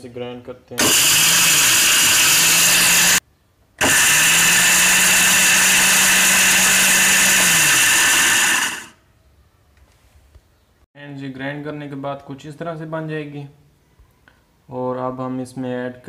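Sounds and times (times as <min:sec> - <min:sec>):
electric grinder grinding lentils: 0:00.8 - 0:03.2, 0:03.8 - 0:09.0.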